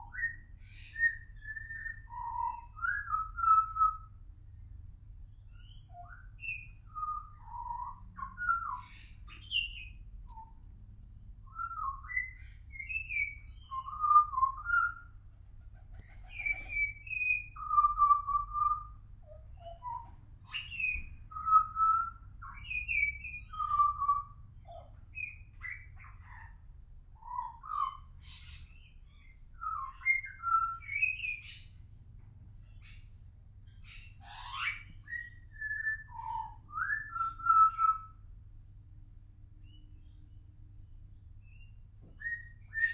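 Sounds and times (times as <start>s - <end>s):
bird singing fluty whistles: 0.0s - 4.2s, 5.6s - 10.6s, 11.4s - 15.1s, 16.2s - 24.4s, 27.2s - 31.6s, 33.8s - 38.2s, 41.4s - 42.9s.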